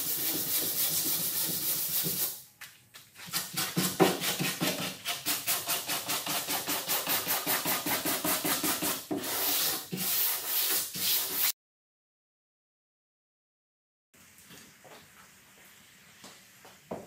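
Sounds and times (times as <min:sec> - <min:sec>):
sandpaper rubbing on wood: 0:00.0 - 0:02.4, 0:03.2 - 0:11.6.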